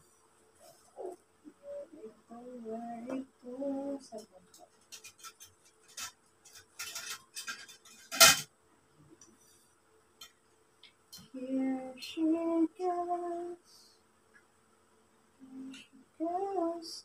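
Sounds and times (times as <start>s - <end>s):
woman humming: 0.8s - 4.6s
metal tubes clattering: 4.8s - 8.5s.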